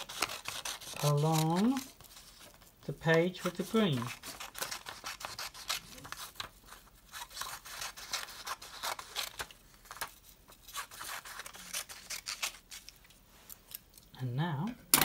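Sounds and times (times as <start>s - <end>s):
scissors cutting paper: 0.0s - 13.8s.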